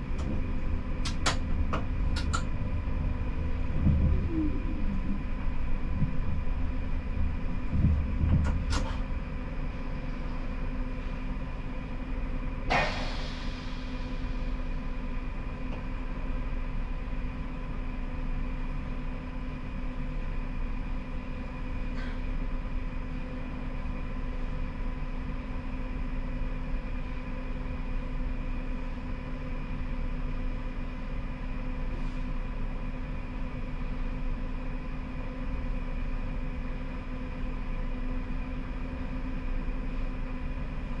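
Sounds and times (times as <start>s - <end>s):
electrical hum: 0.0s - 12.4s
tram cab rumble: 0.0s - 41.0s
sharp clunk: 12.7s - 13.2s.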